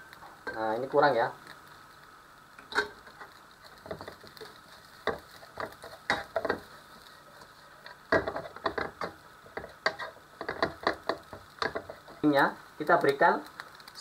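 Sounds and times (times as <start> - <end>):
spatula scraping a frying pan: 2.7 - 12.3.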